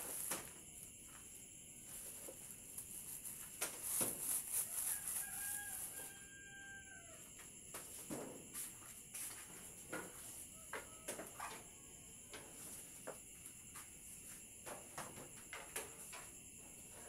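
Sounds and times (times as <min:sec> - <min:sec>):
rooster crowing: 0:04.6 - 0:07.4, 0:10.2 - 0:12.2.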